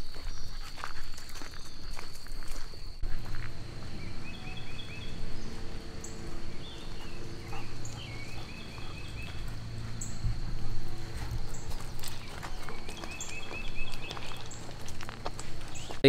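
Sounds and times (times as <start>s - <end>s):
songbird singing: 0.0s - 2.2s, 3.0s - 16.0s
footsteps crunching on gravel: 0.0s - 16.0s
high insect drone: 0.0s - 16.0s
dogs trotting: 5.0s - 16.0s.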